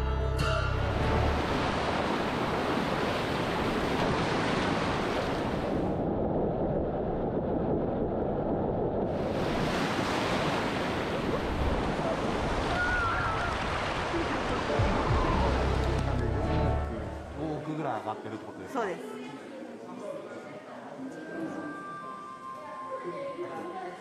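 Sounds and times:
ocean waves breaking: 0:01.0 - 0:17.7.

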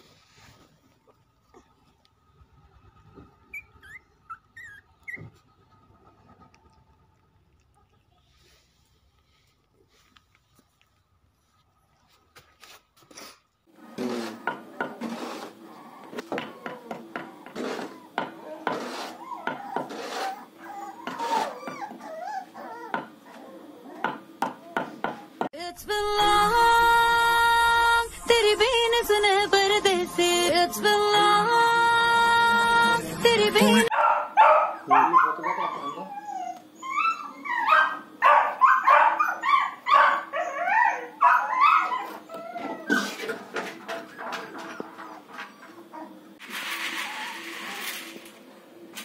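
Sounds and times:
puppy whimpering: 0:03.5 - 0:05.4, 0:17.8 - 0:25.3, 0:34.9 - 0:38.1, 0:38.7 - 0:43.4.

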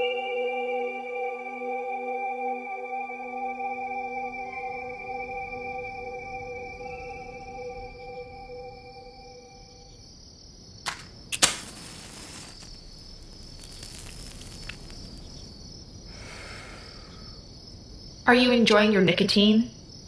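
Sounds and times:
sustained musical tones: 0:00.0 - 0:10.0
crickets chirping: 0:00.0 - 0:20.0
lighter click: 0:10.9 - 0:12.8, 0:13.5 - 0:15.5
match strike with hiss: 0:10.9 - 0:15.5.

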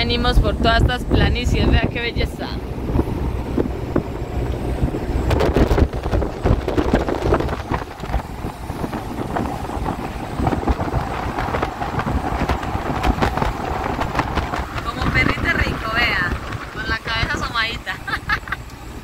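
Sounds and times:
truck engine and road noise: 0:00.0 - 0:19.0
wind buffeting microphone: 0:00.0 - 0:19.0.

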